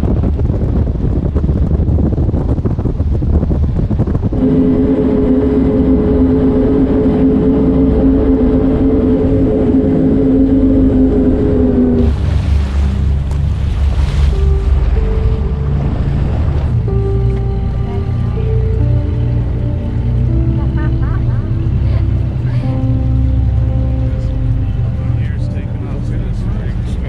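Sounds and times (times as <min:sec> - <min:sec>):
outboard engines high drone: 0:00.0 - 0:27.0
wind and water rushing: 0:00.0 - 0:27.0
wind buffeting microphone: 0:00.0 - 0:27.0
wake hissing and splashing: 0:10.1 - 0:14.5.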